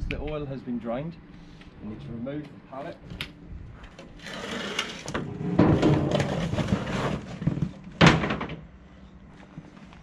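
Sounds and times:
wooden pallet scraping on concrete: 4.2s - 8.0s.

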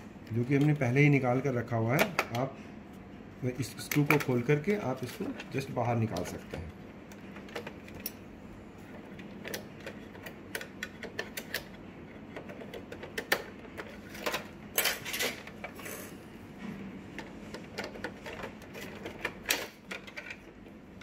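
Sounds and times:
plastic printer parts clicking: 3.7s - 8.1s, 17.2s - 20.6s.

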